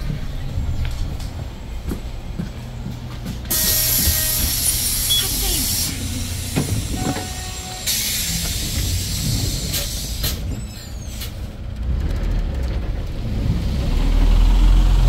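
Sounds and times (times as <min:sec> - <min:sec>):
bus engine rumbling: 0:00.0 - 0:15.0
air brakes hissing: 0:03.4 - 0:11.5.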